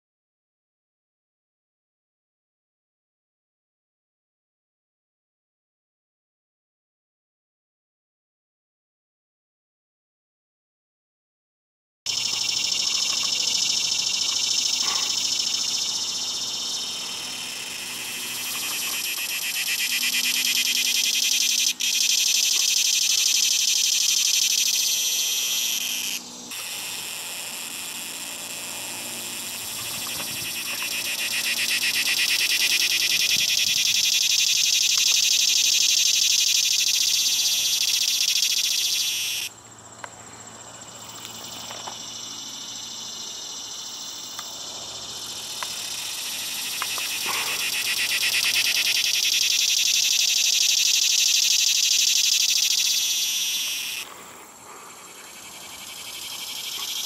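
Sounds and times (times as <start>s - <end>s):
cicada buzzing: 12.1s - 57.0s.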